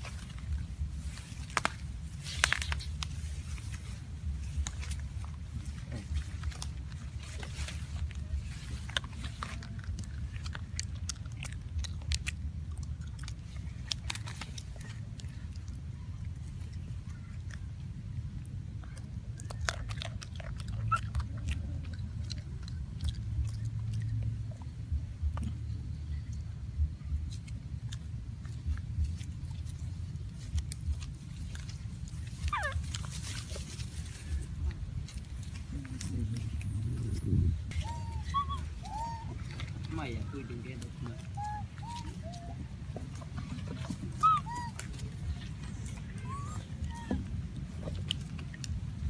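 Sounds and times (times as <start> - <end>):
crisp clicks and crunches: 0.0 - 26.6, 27.2 - 49.0
monkey chewing food: 0.0 - 49.0
steady low rumble: 0.0 - 49.0
monkey squeal: 37.8 - 39.3, 41.4 - 42.5.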